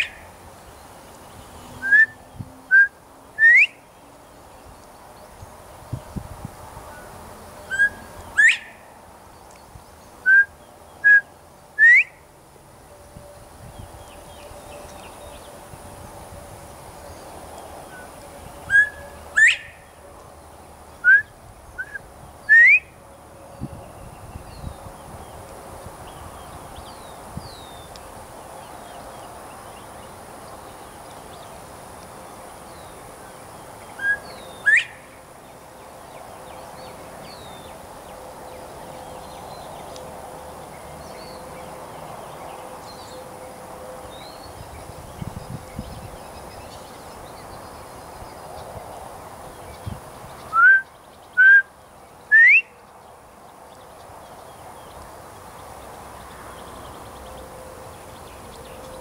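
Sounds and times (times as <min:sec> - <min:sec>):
bobwhite whistling call: 0:01.8 - 0:03.8, 0:07.7 - 0:08.8, 0:10.3 - 0:12.2, 0:18.7 - 0:19.8, 0:21.0 - 0:22.9, 0:34.0 - 0:35.1, 0:50.5 - 0:52.8.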